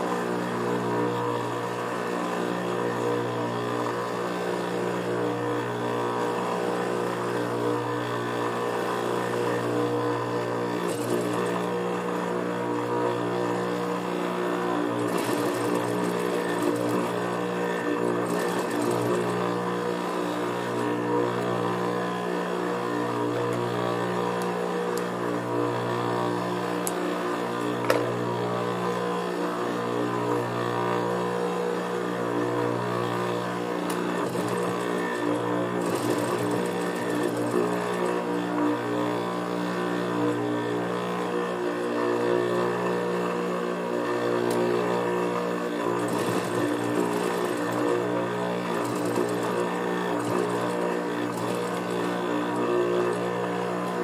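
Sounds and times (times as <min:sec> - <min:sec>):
sewing machine motor humming: 0:00.0 - 0:54.0
rapid needle stitching: 0:10.8 - 0:11.7, 0:14.8 - 0:19.8, 0:33.9 - 0:38.4, 0:45.8 - 0:53.3.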